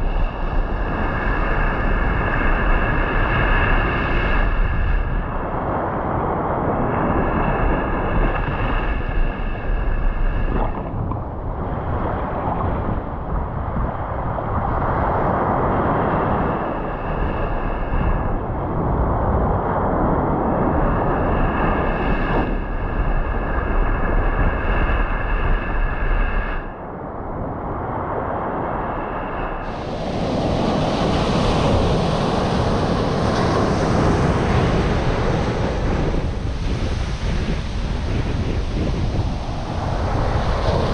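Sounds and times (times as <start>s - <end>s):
steady high whine: 0.0s - 14.8s, 15.5s - 40.9s
wind buffeting microphone: 0.0s - 40.9s
surf breaking on beach: 29.6s - 40.9s.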